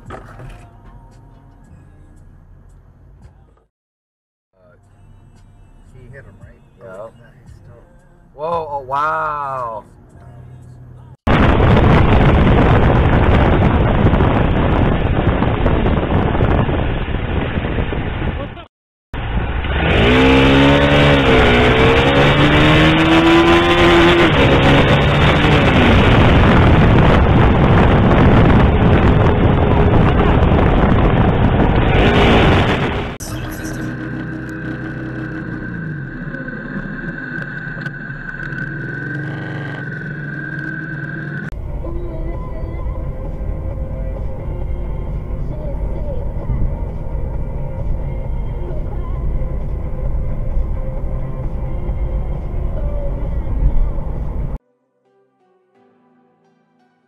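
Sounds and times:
road noise: 0:00.0 - 0:03.7, 0:04.5 - 0:18.6, 0:19.2 - 0:54.6
high whine: 0:11.3 - 0:17.5, 0:19.2 - 0:54.6
wind buffeting microphone: 0:11.3 - 0:18.6, 0:24.3 - 0:33.2
motorcycle engine running: 0:23.1 - 0:54.6.

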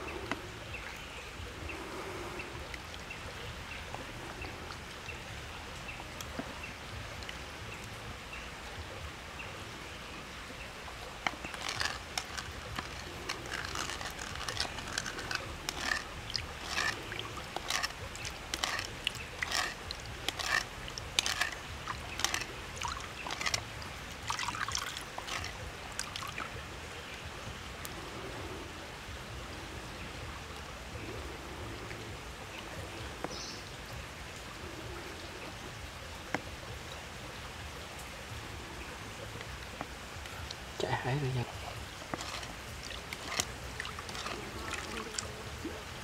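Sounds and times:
low steady hiss: 0:00.0 - 0:46.0
wooden ladle scraping a bowl: 0:11.2 - 0:23.7, 0:24.3 - 0:26.2, 0:42.0 - 0:45.3.

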